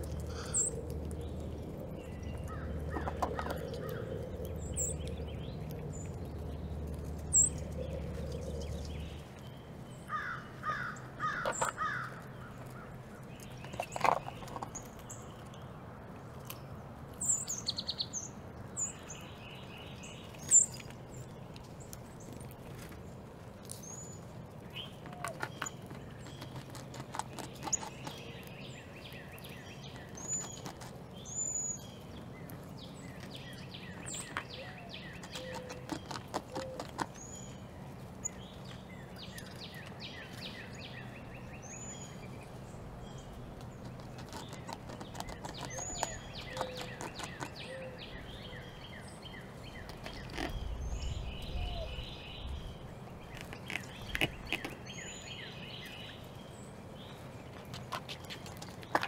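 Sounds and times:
light clicks and scratching: 0.0 - 9.5, 10.1 - 17.3, 20.2 - 51.6, 53.2 - 56.0, 57.0 - 59.0
low rumble: 0.0 - 10.1
small birds chirping: 0.0 - 59.0.

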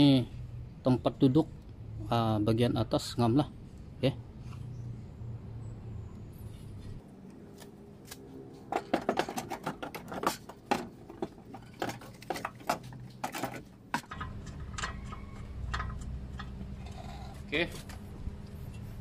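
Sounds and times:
metal parts clinking and knocking: 8.7 - 17.0.

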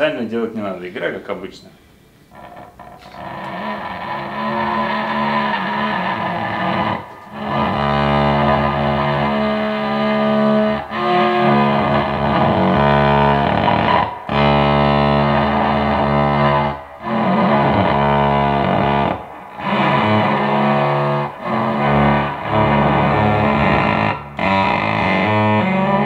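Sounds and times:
electric cello long bowed notes: 3.0 - 26.0.

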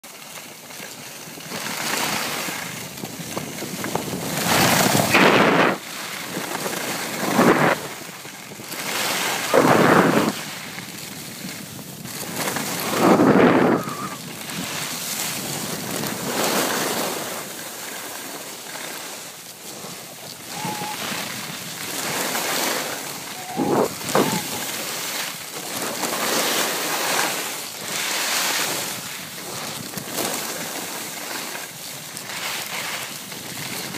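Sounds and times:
skis scraping over snow: 0.1 - 33.9
wind on microphone: 2.2 - 17.5, 19.7 - 26.6.

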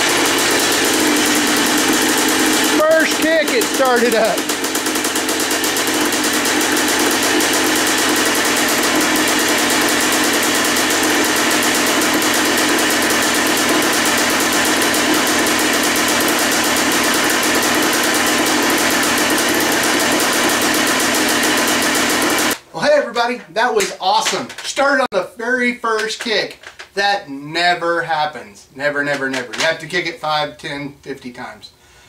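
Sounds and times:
two-stroke engine idling: 0.0 - 22.6.

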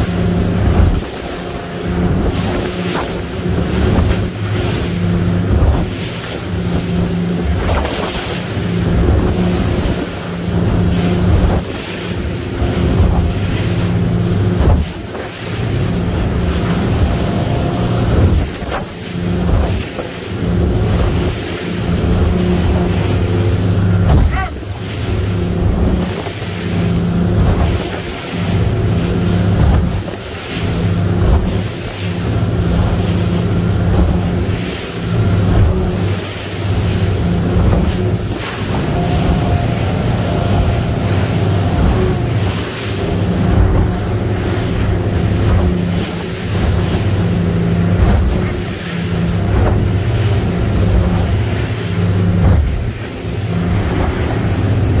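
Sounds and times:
hull thumping on waves: 0.0 - 55.0
outboard engines running: 0.0 - 55.0
water rushing past hull: 0.0 - 55.0
wind buffeting microphone: 31.0 - 55.0.

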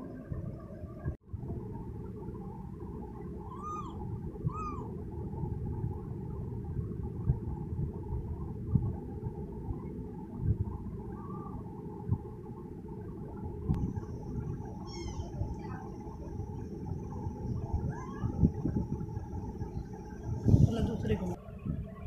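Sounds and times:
steady low rumble: 0.0 - 22.0
kitten mewing: 3.5 - 4.9.

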